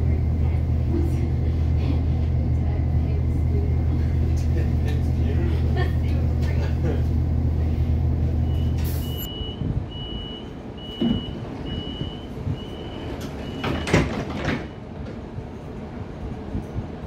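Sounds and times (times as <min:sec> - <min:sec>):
short high door warning beeps: 0:08.5 - 0:14.0.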